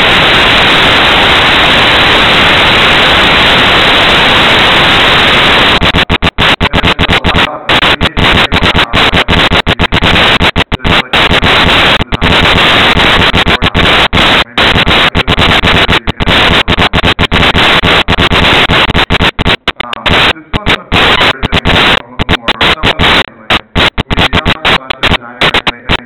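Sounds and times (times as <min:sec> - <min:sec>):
static hiss: 0:00.0 - 0:26.0.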